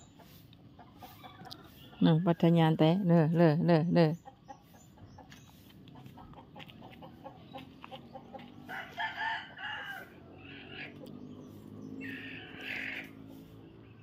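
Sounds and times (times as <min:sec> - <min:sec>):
chickens clucking: 0:00.0 - 0:13.7
rooster crowing: 0:08.6 - 0:10.4.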